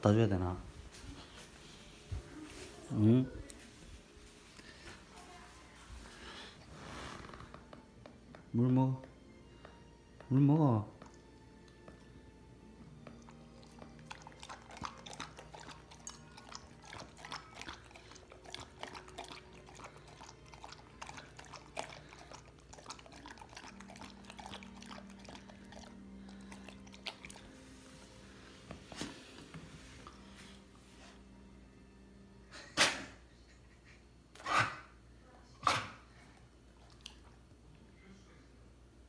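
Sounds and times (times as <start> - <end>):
dog lapping water: 13.1 - 27.6.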